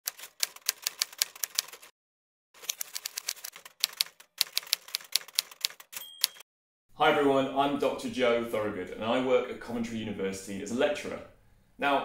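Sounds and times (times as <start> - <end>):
typewriter keys clacking: 0.0 - 1.9, 2.6 - 6.4.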